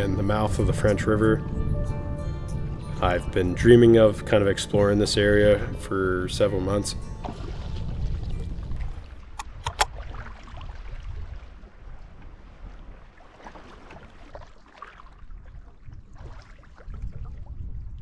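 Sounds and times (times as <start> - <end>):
wind on microphone: 7.2 - 13.1, 15.1 - 18.0
water splashing against canoe: 7.2 - 17.8
sharp clicks: 9.4 - 9.9.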